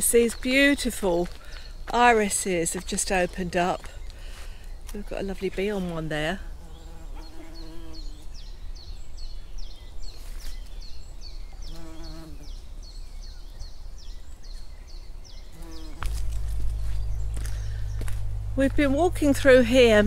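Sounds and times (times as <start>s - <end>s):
bird chirping: 0.0s - 20.0s
bee buzzing: 5.3s - 8.4s, 11.6s - 12.6s, 15.5s - 18.1s
low rumble: 16.2s - 20.0s.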